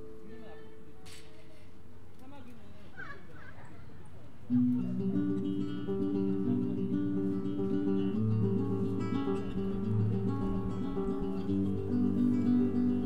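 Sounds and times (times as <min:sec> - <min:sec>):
flamenco acoustic guitar: 0:04.5 - 0:13.0.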